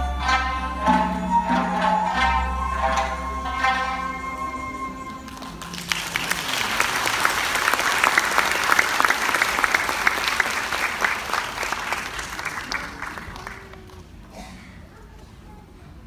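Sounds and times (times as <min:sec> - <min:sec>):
audience applause: 0:05.1 - 0:14.3.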